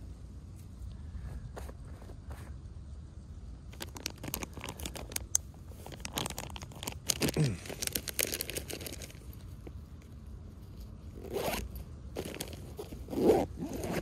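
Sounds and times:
fabric backpack rustling: 10.6s - 14.0s
zipper being pulled open: 11.2s - 14.0s.

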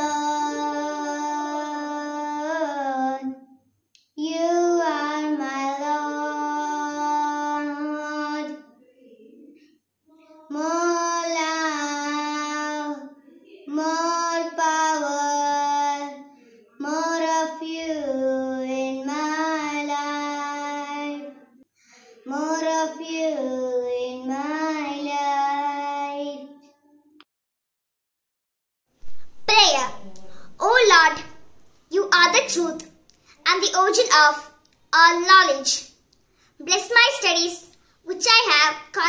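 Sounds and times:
girl singing unaccompanied: 0.0s - 3.4s, 4.0s - 8.7s, 10.2s - 21.4s, 22.0s - 26.7s, 29.3s - 35.9s, 36.6s - 39.0s.

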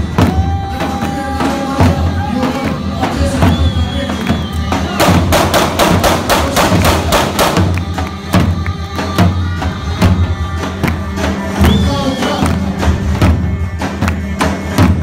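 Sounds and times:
bass drum beats: 0.0s - 15.0s.

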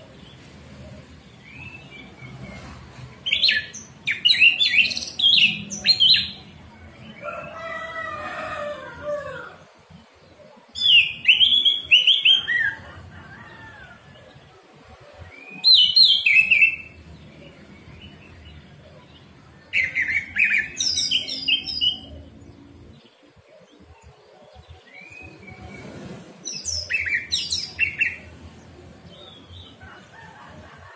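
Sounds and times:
bird singing whistled notes: 10.8s - 12.8s, 26.5s - 28.2s.

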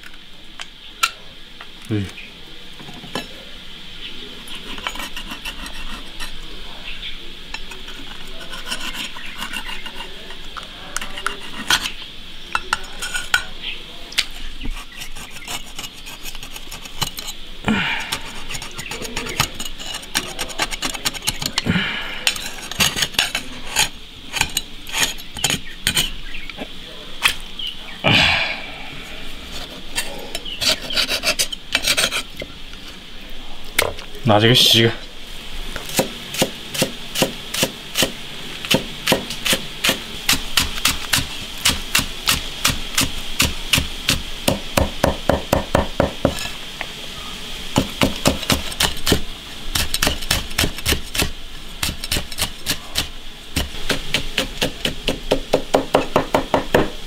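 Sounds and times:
oyster shells rasping scrapes: 4.4s - 6.6s, 7.5s - 13.5s, 14.2s - 26.4s, 29.2s - 33.0s, 46.0s - 46.6s, 47.8s - 55.4s.

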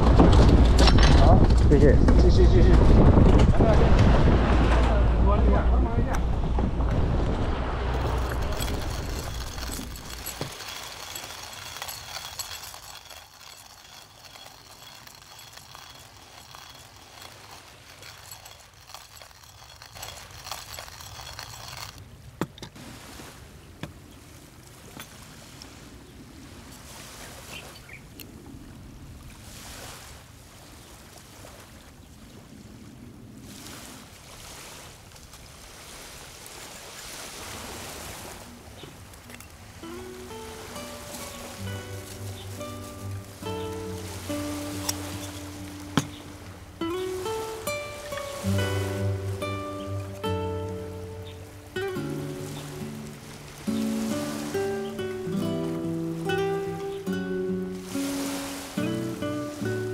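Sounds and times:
sea noise: 0.0s - 59.9s
wind: 0.0s - 59.9s
hand coffee grinder cranking: 8.0s - 22.1s, 40.3s - 50.5s.

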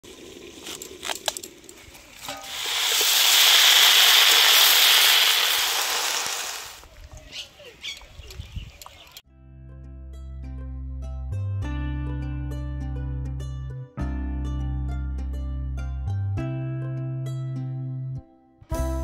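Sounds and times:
spatula scraping wok: 2.2s - 6.8s
vegetables sizzling in wok: 2.2s - 6.8s.

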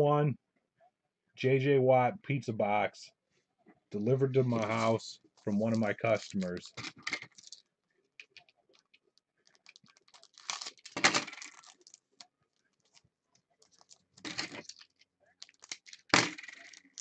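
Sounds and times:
foil pack crinkling: 4.4s - 7.6s, 8.7s - 17.0s
foil pack rustling: 4.5s - 6.8s, 9.5s - 12.2s.

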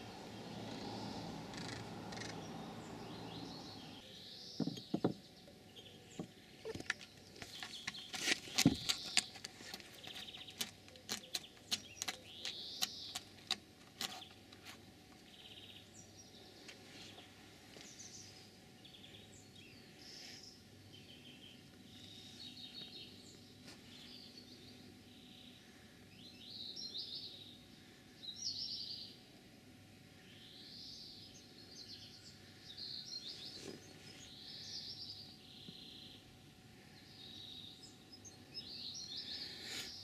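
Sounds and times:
birds chirping: 0.0s - 29.3s, 30.1s - 40.0s
cat claws scratching wood: 6.7s - 14.8s.

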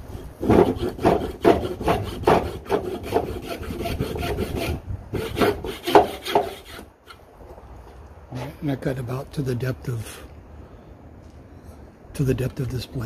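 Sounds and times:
hand saw cutting wood: 0.1s - 7.2s.

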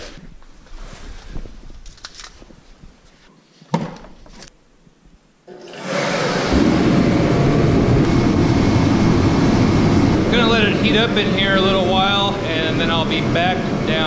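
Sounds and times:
heater fan and burner roar: 5.6s - 14.0s.

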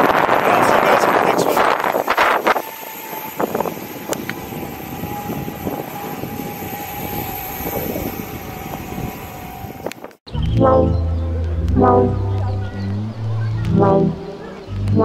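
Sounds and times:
electric motors whining: 1.7s - 10.1s.

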